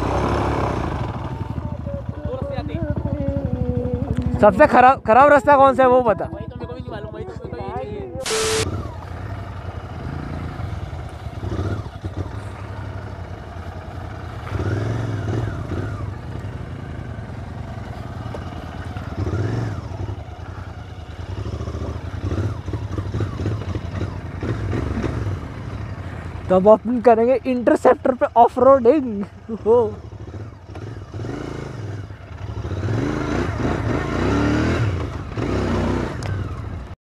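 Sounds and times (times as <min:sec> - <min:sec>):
motorcycle engine revving: 0:00.0 - 0:37.0
static glitch noise: 0:08.2 - 0:08.7.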